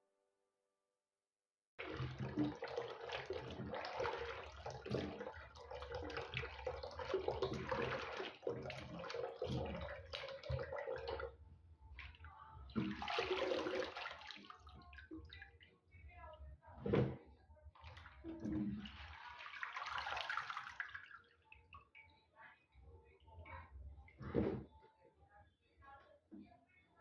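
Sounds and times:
water sloshing in a pot: 0:01.8 - 0:22.2.

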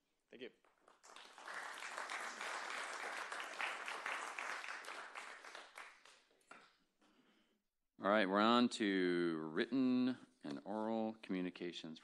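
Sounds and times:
audience applauding: 0:00.8 - 0:06.3.

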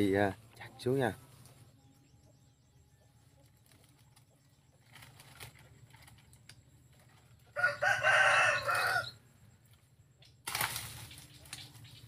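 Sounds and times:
rooster crowing: 0:07.5 - 0:09.2.

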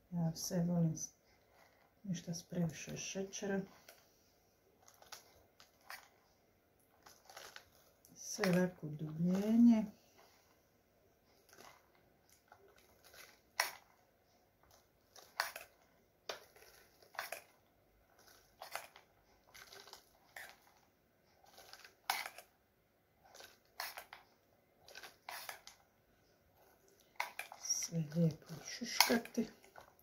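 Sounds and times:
walnuts clicking and crunching: 0:04.8 - 0:06.2, 0:07.0 - 0:09.5, 0:11.4 - 0:13.9, 0:14.6 - 0:22.6, 0:23.3 - 0:24.2, 0:24.8 - 0:25.8, 0:26.6 - 0:30.0.

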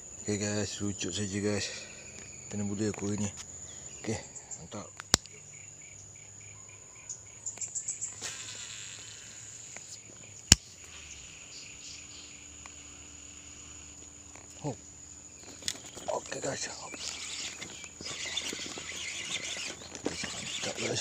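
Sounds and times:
crickets trilling: 0:00.0 - 0:21.0
fishing reel whir: 0:08.0 - 0:09.9, 0:17.0 - 0:21.0.

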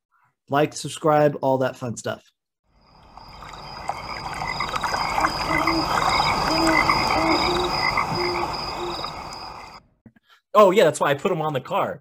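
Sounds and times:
short pitched animal calls: 0:05.0 - 0:09.8.

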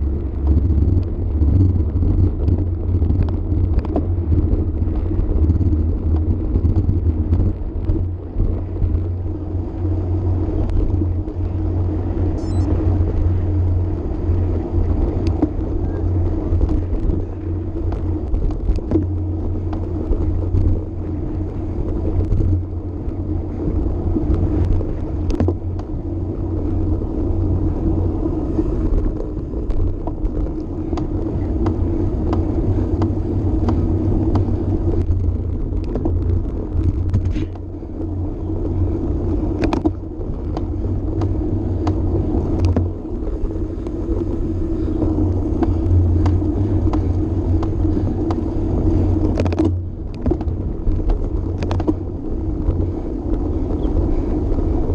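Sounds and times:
bike clicks and rattles: 0:00.0 - 0:54.9
bike tyres rolling: 0:00.0 - 0:54.9
wind on microphone: 0:00.0 - 0:54.9.

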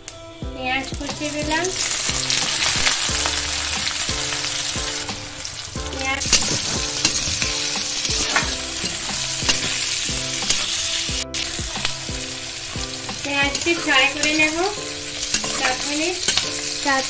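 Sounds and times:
onions sizzling in oil: 0:01.0 - 0:17.0
spatula scraping metal pan: 0:06.1 - 0:11.1, 0:13.1 - 0:17.0.

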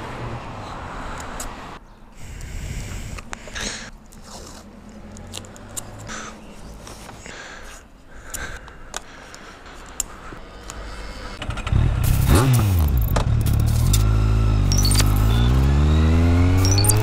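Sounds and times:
adhesive tape pulled and torn: 0:12.0 - 0:14.2, 0:14.8 - 0:15.3.

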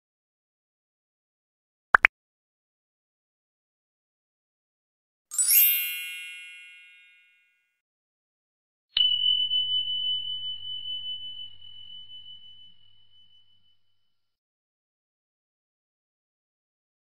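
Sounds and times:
bright chime: 0:05.3 - 0:07.6
high bell ding: 0:05.4 - 0:07.5.

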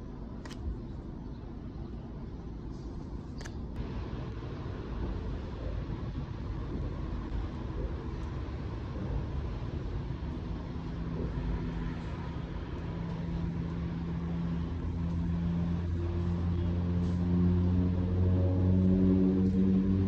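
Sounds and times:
low mechanical rumble and hum: 0:00.0 - 0:20.0.

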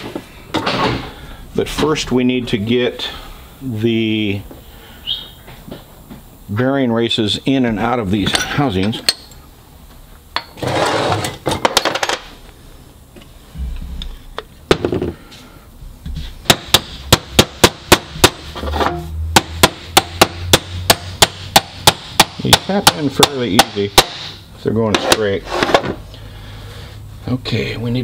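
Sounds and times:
hammer tapping metal: 0:08.3 - 0:09.4, 0:16.4 - 0:25.3.

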